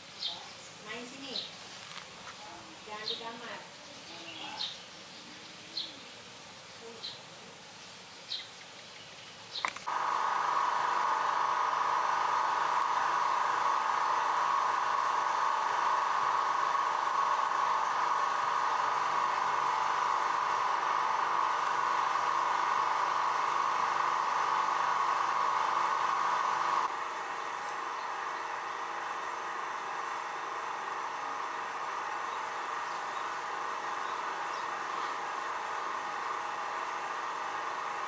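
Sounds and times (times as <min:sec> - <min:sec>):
loud steady drone: 0:09.9 - 0:37.3.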